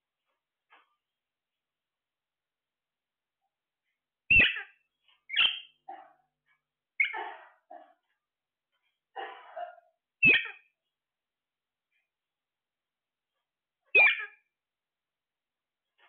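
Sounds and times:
parakeets squawking: 4.3 - 5.7, 7.0 - 7.2, 10.2 - 10.6, 14.0 - 14.4
parakeets chattering: 4.3 - 5.8, 7.0 - 7.3, 10.2 - 10.6, 14.0 - 14.4.

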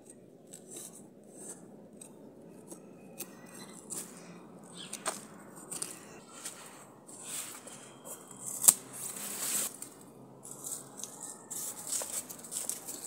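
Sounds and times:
hand tool digging in soil: 0.0 - 13.0
scissors snipping stem: 8.4 - 10.0.

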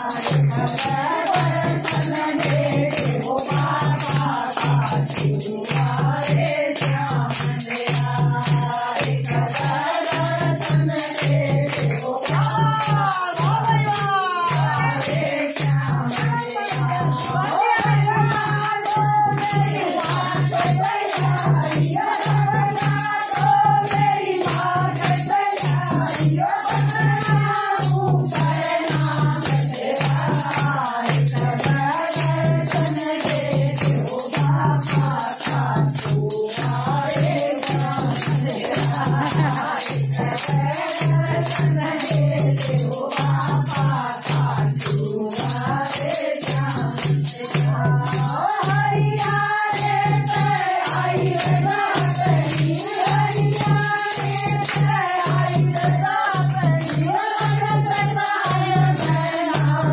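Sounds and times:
hands clapping: 0.0 - 23.6, 49.3 - 57.6
hand clappers jingling: 0.0 - 59.9
women singing devotional song: 0.0 - 59.9.

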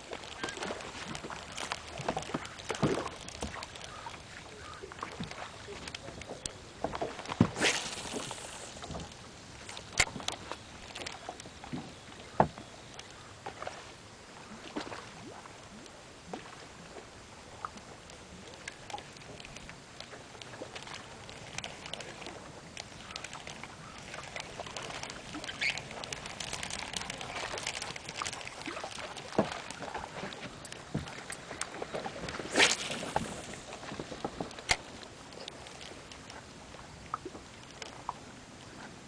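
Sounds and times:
small splashes: 0.0 - 11.8, 20.4 - 36.4
waves lapping against boat hull: 0.0 - 39.0.

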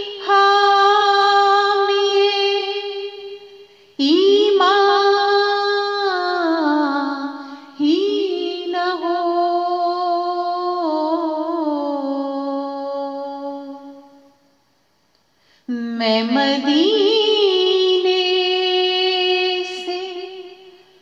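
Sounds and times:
woman singing solo: 15.7 - 21.0.

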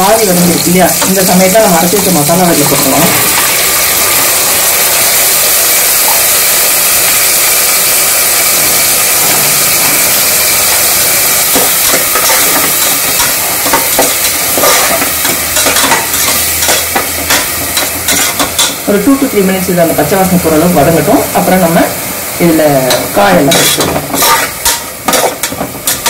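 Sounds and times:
loud frying sizzle: 0.0 - 26.0
spatula stirring scrapes: 11.5 - 18.7, 23.5 - 26.0.

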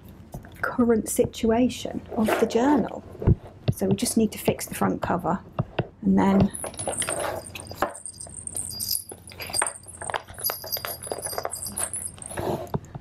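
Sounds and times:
light metallic jingle: 6.5 - 12.6.

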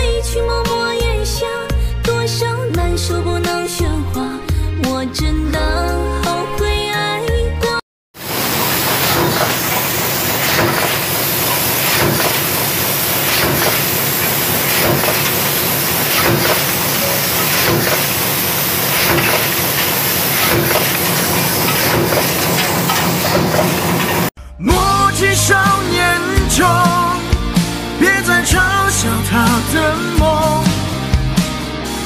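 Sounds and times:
steady loud hiss: 8.2 - 24.3
stamping press knocks: 11.8 - 12.5, 17.5 - 18.1.

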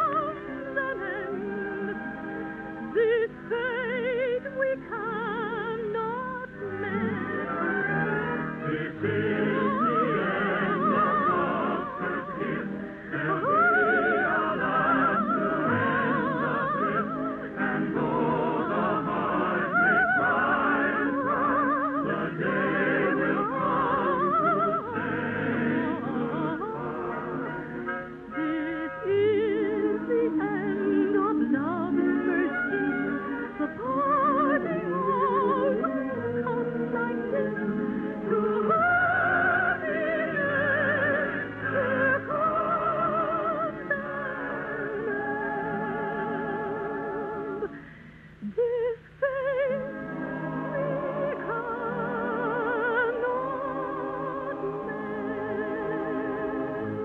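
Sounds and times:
orchestra: 0.0 - 57.0
high operatic voice singing: 3.0 - 27.6, 28.3 - 47.7.

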